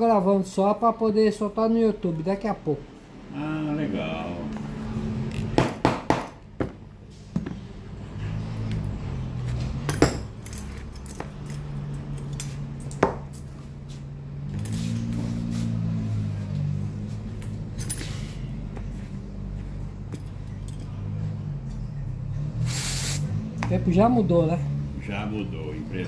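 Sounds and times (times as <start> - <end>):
metal tools clinking on workbench: 9.8 - 13.6
aerosol spray hiss: 22.6 - 23.4.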